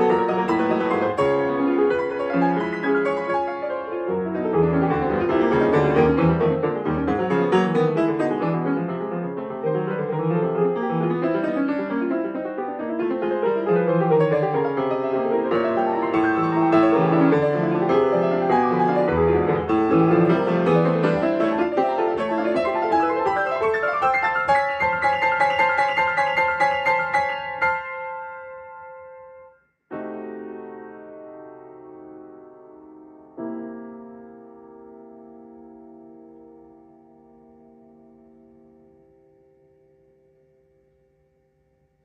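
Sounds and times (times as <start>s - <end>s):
grand piano classical runs: 0.0s - 29.2s.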